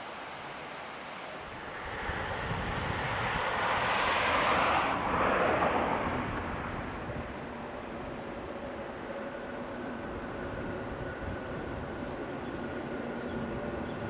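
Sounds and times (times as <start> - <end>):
vehicle passing by: 1.6 - 7.8.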